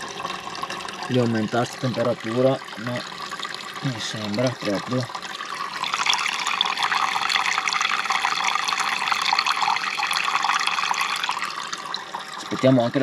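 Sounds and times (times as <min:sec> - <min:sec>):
tap water running into plastic jug: 0:00.0 - 0:13.0.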